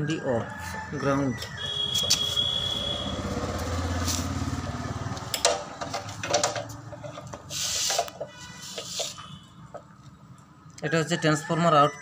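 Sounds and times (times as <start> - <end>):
rubbing and scraping: 6.9 - 9.4.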